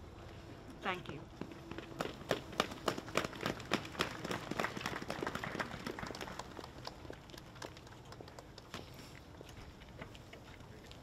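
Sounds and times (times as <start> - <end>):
small crowd applauding: 2.0 - 8.9.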